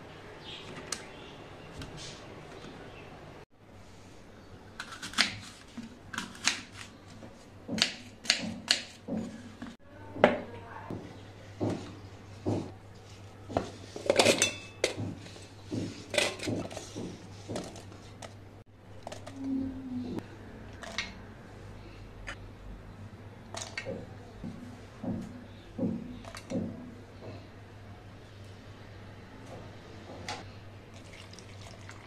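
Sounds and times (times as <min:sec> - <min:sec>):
knife chopping on wooden board: 0:07.7 - 0:09.3.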